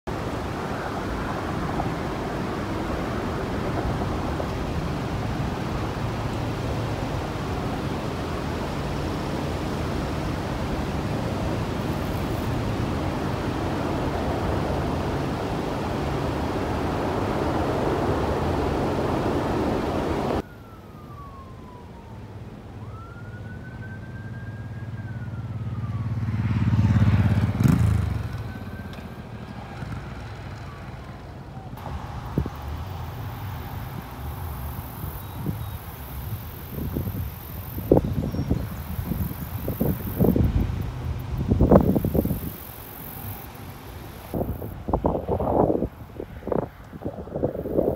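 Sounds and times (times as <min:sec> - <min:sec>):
wind rushing over microphone: 0:00.1 - 0:20.4, 0:31.8 - 0:47.9
tornado warning siren wailing: 0:00.4 - 0:47.9.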